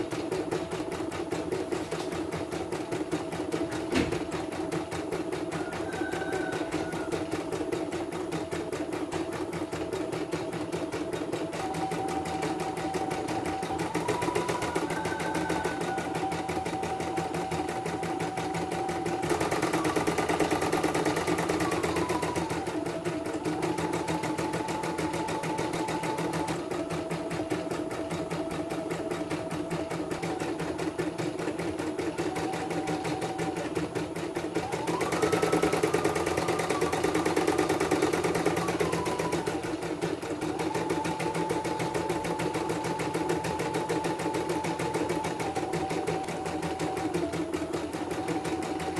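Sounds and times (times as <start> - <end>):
embroidery machine stitching: 0.0 - 48.9
machine whine changing pitch: 11.5 - 48.9.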